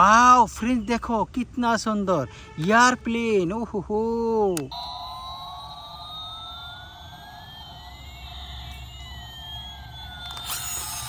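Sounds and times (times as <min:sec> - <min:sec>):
toy click: 0:04.5 - 0:11.0
toy siren-like tones: 0:04.6 - 0:11.0
steady buzzing tone: 0:04.7 - 0:11.0.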